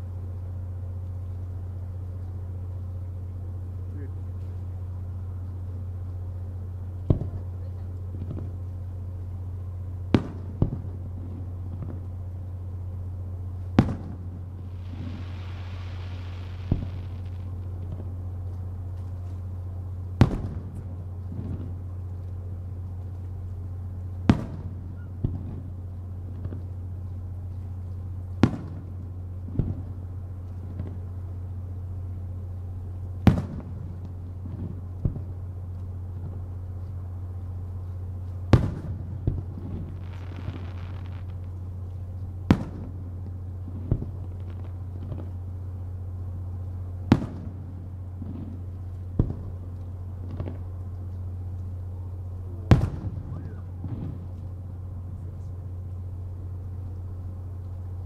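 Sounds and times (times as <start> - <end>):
steady low hum: 0.0 - 58.0
firework shells bursting: 13.8 - 19.2, 38.6 - 45.4.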